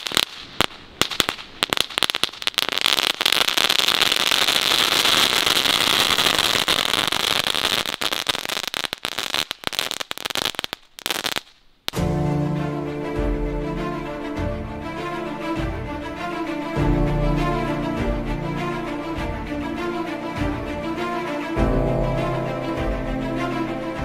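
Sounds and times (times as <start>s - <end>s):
firework fizzing hiss: 0.0s - 12.0s
ground firework crackling: 0.0s - 12.0s.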